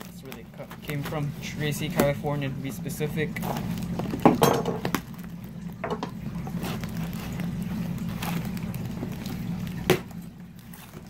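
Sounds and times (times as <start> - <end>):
cardboard rustling and scraping: 0.0 - 2.4, 3.2 - 4.4, 6.5 - 11.0.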